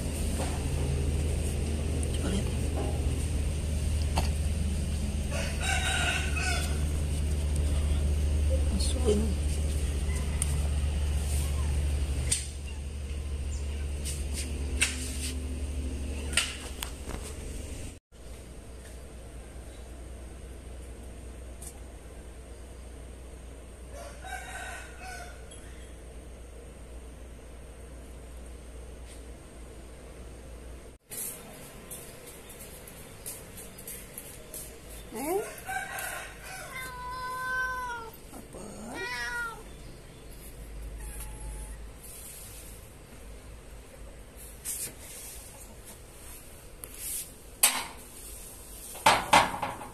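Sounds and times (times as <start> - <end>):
steady low rumble: 0.0 - 23.8
cat meowing: 36.5 - 39.7, 41.0 - 41.9.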